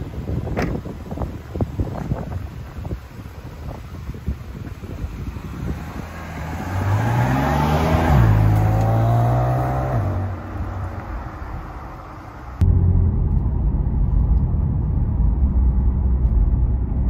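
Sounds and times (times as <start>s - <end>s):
car engine accelerating: 5.4s - 17.0s.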